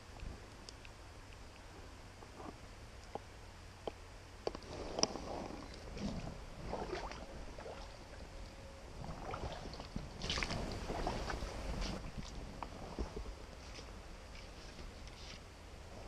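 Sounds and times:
water splashing and sloshing: 4.5s - 15.4s.

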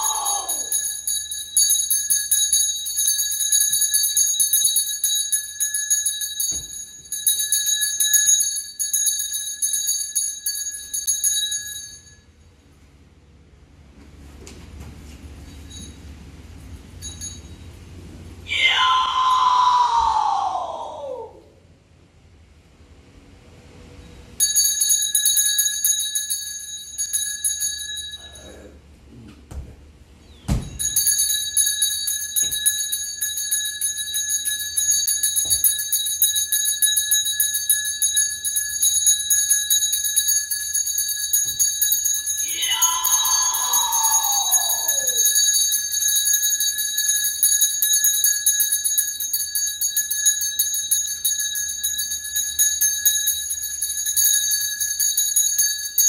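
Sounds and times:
person calling out: 0.0s - 0.7s, 18.5s - 21.5s, 42.4s - 45.2s
hand bell ringing: 0.0s - 12.4s, 15.4s - 17.8s, 24.4s - 28.6s, 30.6s - 56.0s.

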